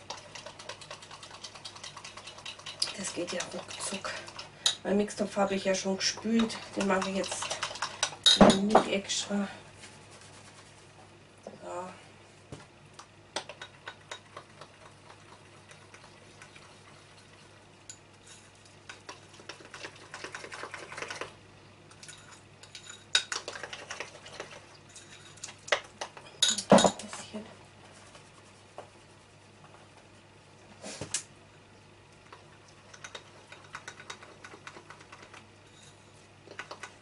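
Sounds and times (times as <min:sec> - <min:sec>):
spoon scraping glass bowl: 0:35.7 - 0:36.2.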